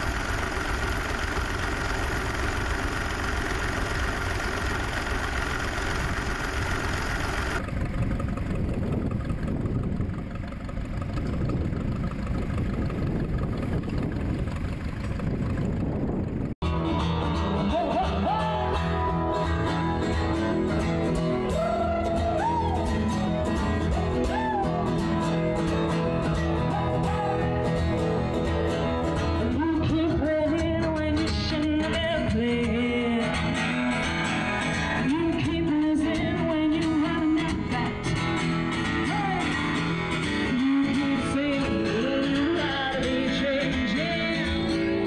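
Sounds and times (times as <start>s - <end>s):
strummed acoustic guitar: 16.6s - 45.0s
person singing: 16.9s - 20.4s, 26.6s - 27.9s.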